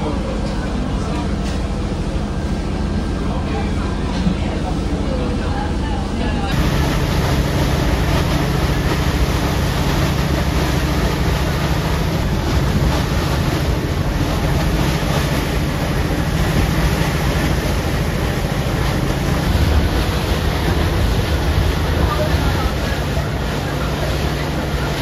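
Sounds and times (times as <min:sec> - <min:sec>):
boat engines humming: 0:00.0 - 0:25.0
water rushing along hull: 0:00.0 - 0:25.0
wind buffeting microphone: 0:06.5 - 0:24.3.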